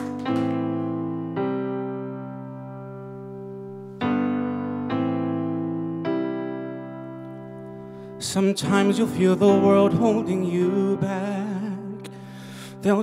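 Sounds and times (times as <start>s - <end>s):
digital piano chords: 0.0s - 13.0s
man singing: 8.2s - 13.0s.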